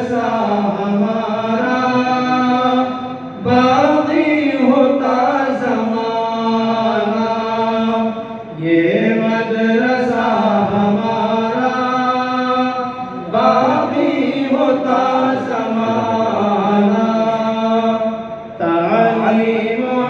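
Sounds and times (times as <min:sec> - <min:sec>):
person singing devotional song: 0:00.0 - 0:20.0
steady drone: 0:00.0 - 0:20.0.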